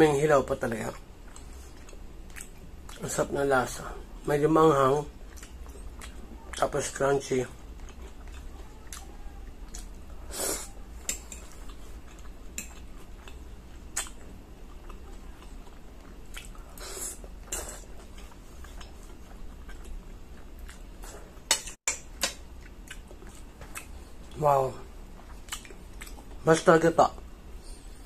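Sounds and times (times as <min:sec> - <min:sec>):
low steady hum: 0:00.0 - 0:28.0.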